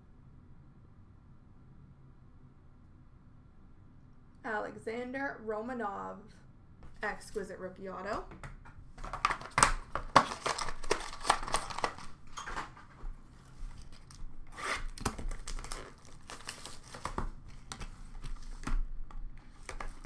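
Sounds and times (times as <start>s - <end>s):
packaging crinkling and rustling: 9.0s - 20.0s.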